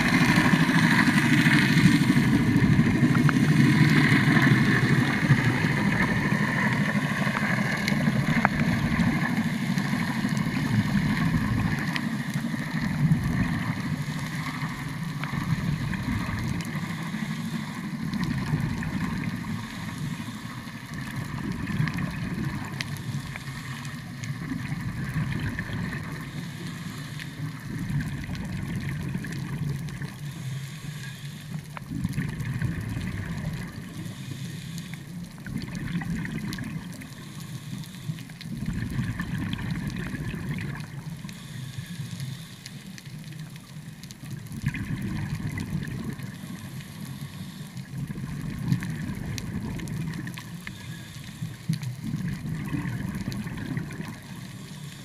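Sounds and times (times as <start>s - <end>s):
exhaled bubbles gurgling underwater: 0.0s - 55.0s
regulator inhalation hiss: 16.7s - 18.0s, 19.4s - 20.8s, 26.1s - 27.6s, 30.2s - 31.6s, 33.9s - 35.1s, 37.1s - 38.2s, 41.3s - 42.9s, 46.2s - 47.9s, 50.7s - 51.7s, 54.2s - 55.0s.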